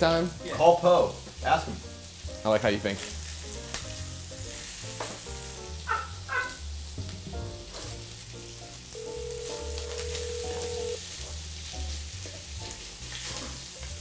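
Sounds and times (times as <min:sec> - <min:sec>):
sausage sizzling in a skillet: 0:00.0 - 0:14.0
phone ringing tone: 0:09.0 - 0:11.0.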